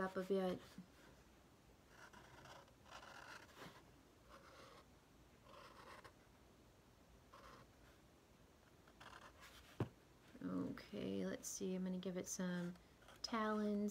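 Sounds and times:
marker scratching on cardboard: 1.9 - 6.2, 7.3 - 7.7, 8.9 - 9.8.

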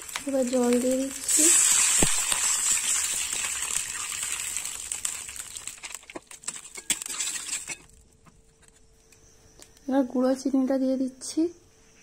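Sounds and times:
hot oil hissing: 0.0 - 7.9
oil popping: 1.3 - 8.0.

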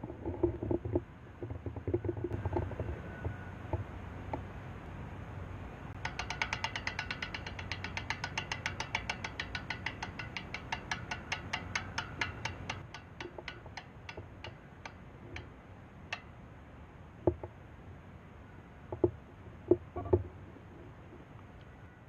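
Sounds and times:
bicycle freehub ticking: 6.0 - 15.5.

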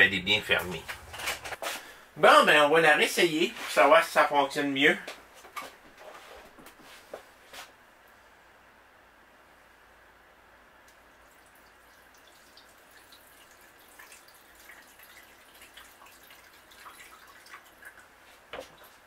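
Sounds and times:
water trickling and dripping: 10.9 - 19.0.

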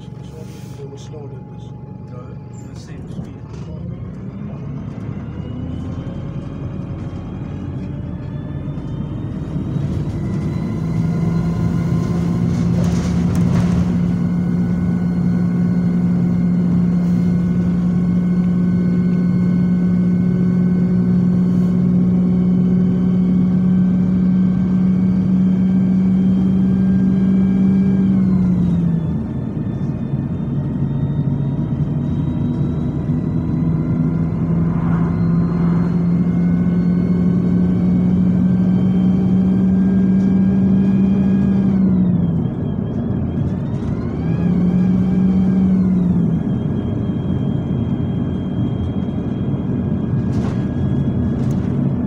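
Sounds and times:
bus diesel engine accelerating: 0.0 - 52.0
gear change: 30.6 - 44.7.

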